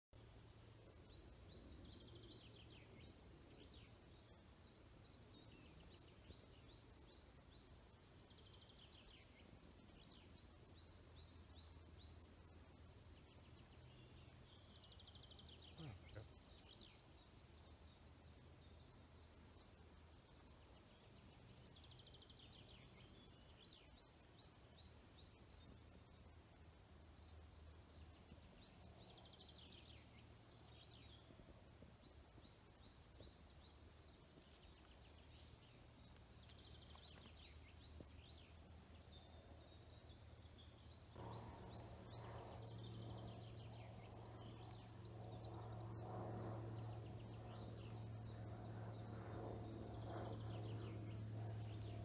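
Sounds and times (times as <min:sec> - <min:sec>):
songbirds chirping: 0:00.2 - 0:52.0
low engine hum: 0:40.5 - 0:52.0.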